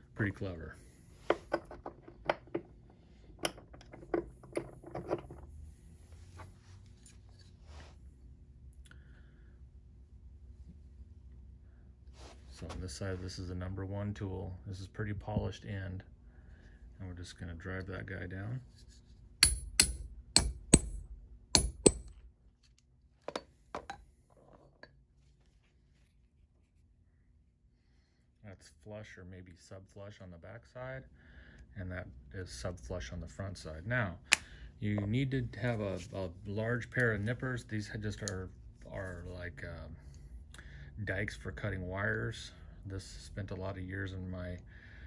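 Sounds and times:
hammer striking metal: 0:19.4 - 0:22.2.

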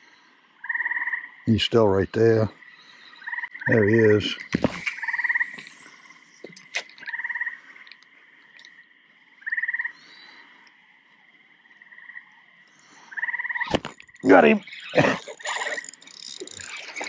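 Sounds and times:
frog trilling: 0:00.6 - 0:01.4, 0:02.6 - 0:07.9, 0:09.4 - 0:10.1, 0:13.1 - 0:17.0.

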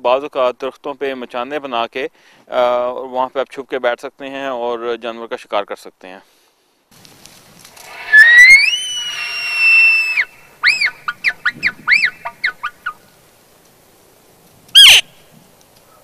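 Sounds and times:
elk bugle whistle: 0:08.0 - 0:13.0, 0:14.8 - 0:15.2.

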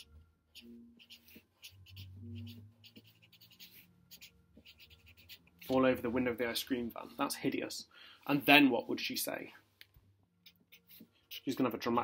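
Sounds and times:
marker scratching on paper: 0:00.0 - 0:05.8, 0:10.4 - 0:11.8.

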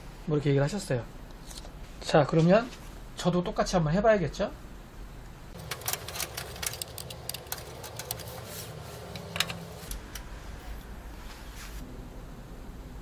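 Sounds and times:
clicks and taps of handling: 0:05.6 - 0:08.4.

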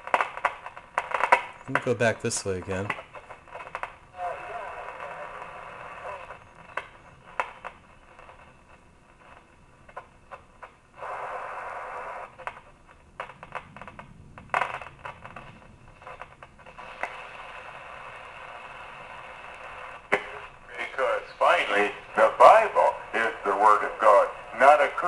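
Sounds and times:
radio static hiss and crackle: 0:00.0 - 0:25.0.

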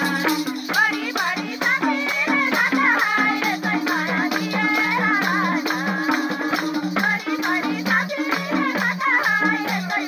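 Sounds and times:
tambourine jingles: 0:00.0 - 0:10.0
women singing folk song: 0:00.0 - 0:10.0
hand claps: 0:06.0 - 0:07.2, 0:08.2 - 0:09.4.

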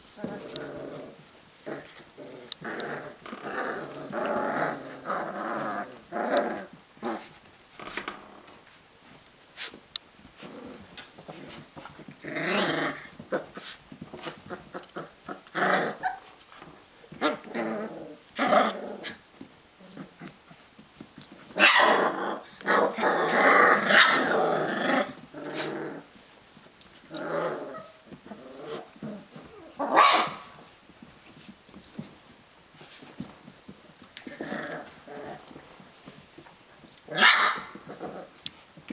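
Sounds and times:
puppies growling: 0:00.0 - 0:08.8, 0:10.2 - 0:38.9.

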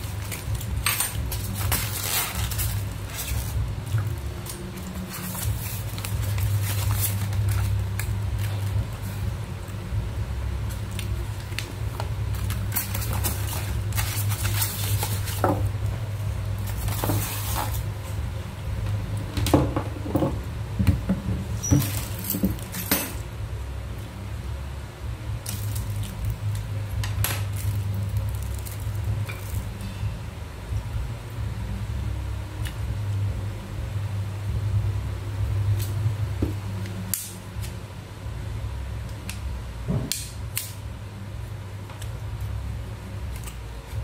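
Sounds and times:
paper and plastic rustling: 0:00.0 - 0:09.2, 0:10.7 - 0:15.7, 0:16.6 - 0:17.9
steady low hum: 0:00.0 - 0:44.0.

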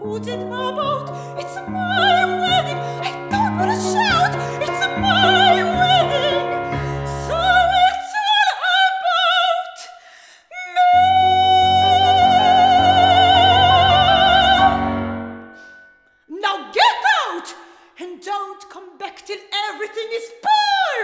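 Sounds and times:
grand piano accompaniment: 0:00.0 - 0:08.0, 0:11.0 - 0:16.0
operatic soprano singing: 0:00.0 - 0:21.0.

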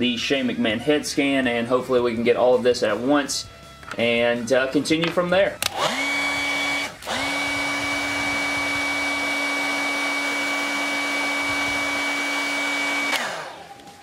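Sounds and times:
hot-air blower running: 0:05.6 - 0:14.0.

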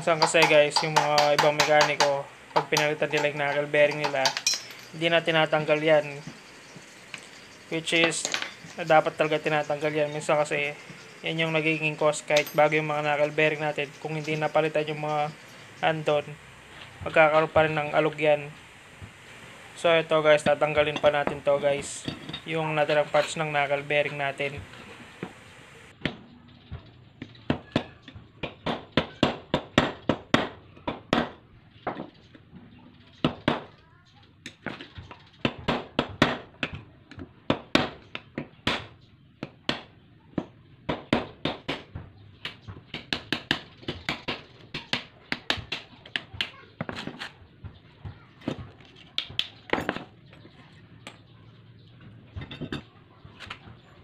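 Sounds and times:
hammer striking metal punch: 0:00.0 - 0:05.0.

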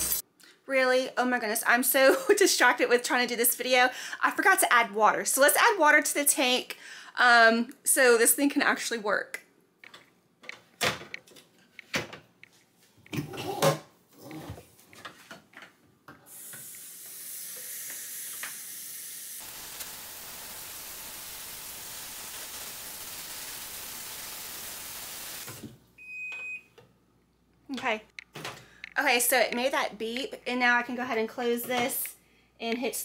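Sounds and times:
water running into a tank: 0:19.4 - 0:25.6.

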